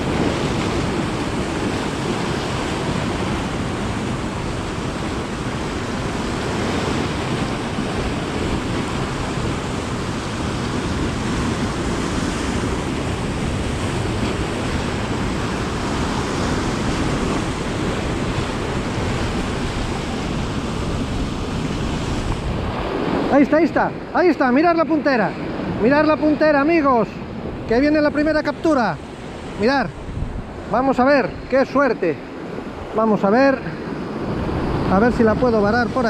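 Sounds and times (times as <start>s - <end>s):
surf washing against rocks: 0.0s - 36.0s
wind blowing across microphone: 0.0s - 36.0s.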